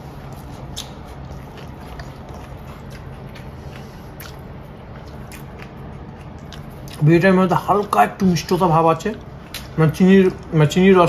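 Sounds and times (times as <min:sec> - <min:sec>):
person chewing food: 0:00.0 - 0:08.0, 0:09.2 - 0:10.6
steady low hum: 0:00.0 - 0:11.0
wet mouth clicks and smacks: 0:00.3 - 0:03.6.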